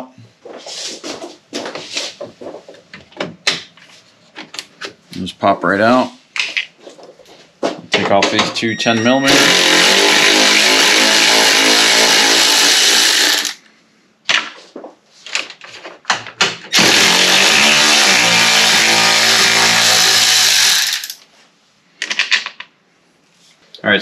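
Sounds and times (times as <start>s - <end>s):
cordless power tool spinning: 9.2s - 13.6s, 16.7s - 21.2s.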